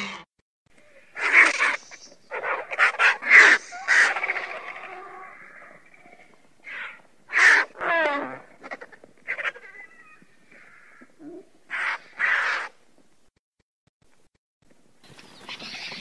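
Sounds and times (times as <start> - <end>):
vultures harsh raspy calls: 0.9 - 12.8.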